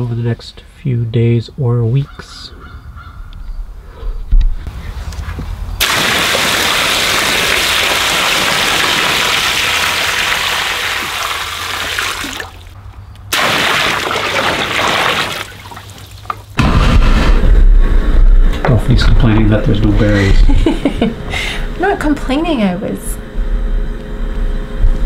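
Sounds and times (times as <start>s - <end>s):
water pouring and splashing into pool: 5.8s - 16.6s.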